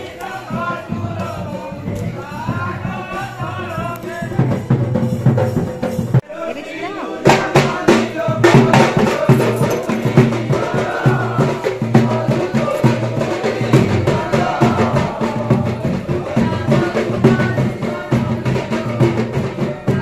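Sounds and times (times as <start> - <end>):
clacking percussion: 0.0 - 6.3, 7.2 - 20.0
drum beat: 0.0 - 6.4, 7.2 - 20.0
person singing: 6.2 - 20.0.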